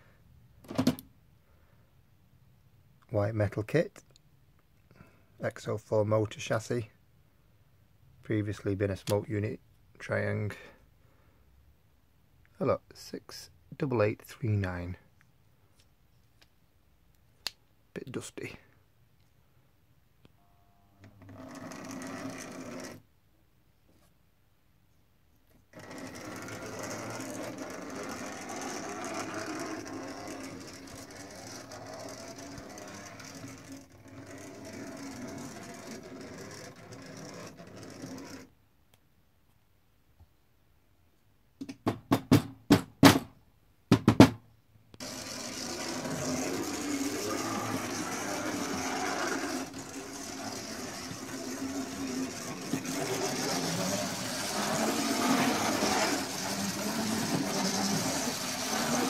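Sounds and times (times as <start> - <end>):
model train motor whirring: 21.4 - 23.0, 25.7 - 38.5, 45.0 - 59.0.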